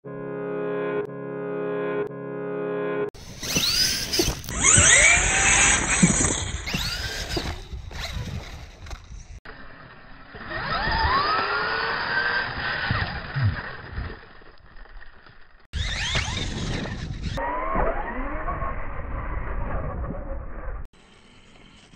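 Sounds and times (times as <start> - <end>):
electric motor whining: 3.2 - 8.5, 9.5 - 13.5, 15.8 - 18.6
tyres scrabbling in sand and gravel: 3.2 - 9.5.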